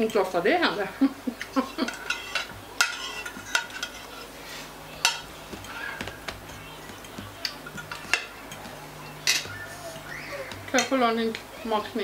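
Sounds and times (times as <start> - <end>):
fork clinking on ceramic plate: 1.8 - 4.1.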